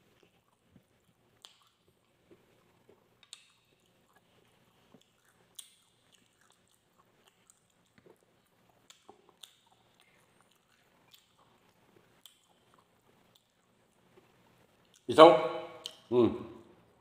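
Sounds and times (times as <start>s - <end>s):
man chewing food: 0.0s - 15.1s
sharp wet mouth clicks: 15.8s - 16.1s.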